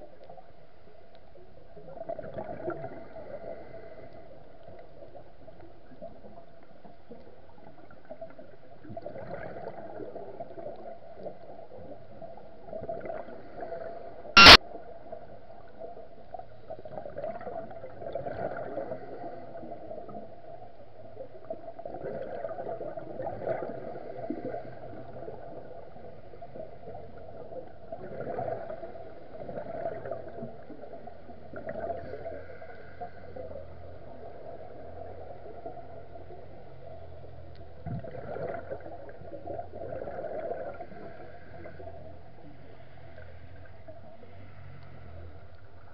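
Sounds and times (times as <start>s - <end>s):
exhaled bubbles gurgling: 1.8s - 4.0s, 7.1s - 14.4s, 15.2s - 37.0s, 37.6s - 44.3s
loud sharp click: 14.4s - 14.6s.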